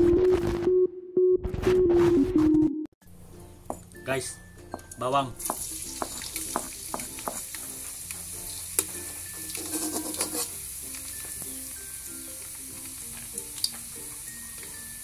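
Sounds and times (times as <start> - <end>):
garlic sizzling in hot oil: 5.4 - 15.0.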